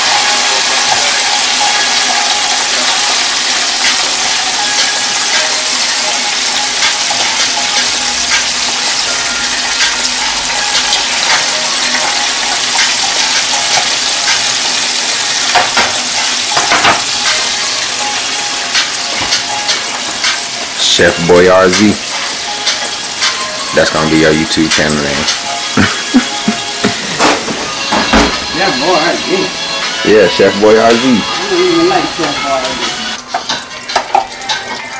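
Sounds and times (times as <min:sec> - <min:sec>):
oil sizzling and crackling: 0:00.0 - 0:34.9.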